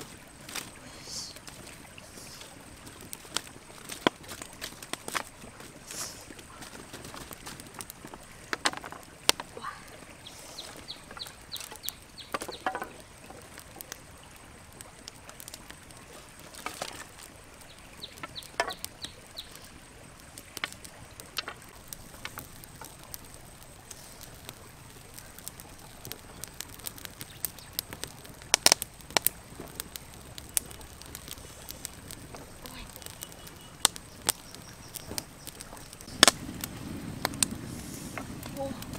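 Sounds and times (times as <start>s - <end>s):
campfire crackling and popping: 0.0s - 38.9s
bird chirping: 10.2s - 12.6s, 32.4s - 36.2s.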